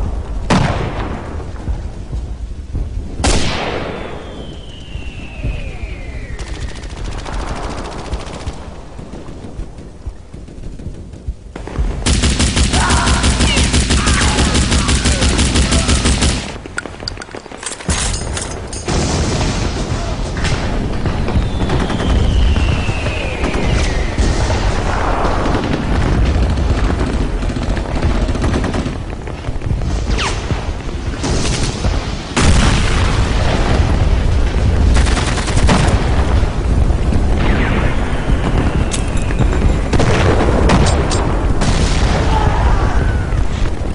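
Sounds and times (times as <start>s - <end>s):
explosion booms: 0.0s - 6.4s, 18.9s - 43.9s
falling whistle: 4.2s - 6.8s
machine-gun fire: 6.4s - 16.7s, 18.1s - 34.0s, 34.7s - 42.2s.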